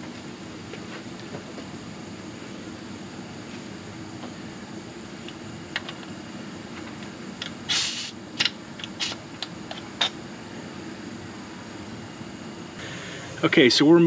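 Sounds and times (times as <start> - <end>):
steady low hum: 0.0 - 14.0
compressed air hiss: 7.6 - 9.2, 12.8 - 13.5.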